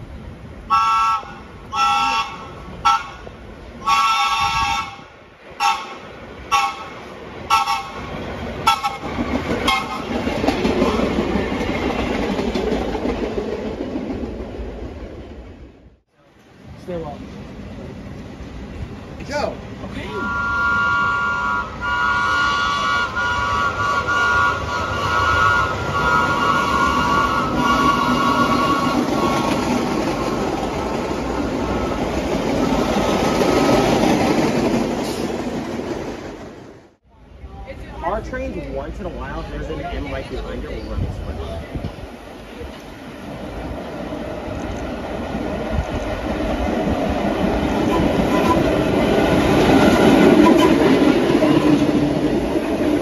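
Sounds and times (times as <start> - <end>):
train rumble: 0.0 - 53.0
train horn blasts: 0.7 - 3.2, 3.8 - 6.9, 7.5 - 8.0, 20.1 - 29.6.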